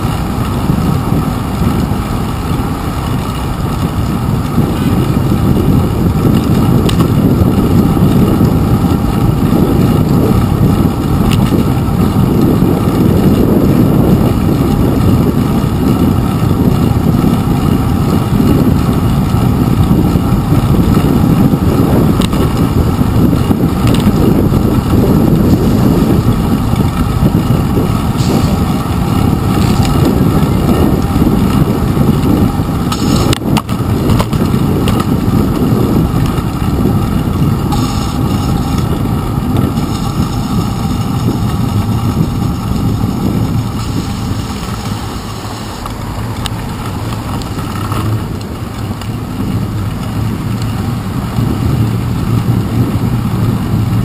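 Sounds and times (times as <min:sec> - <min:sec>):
wind and road rumble: 0:00.0 - 0:54.0.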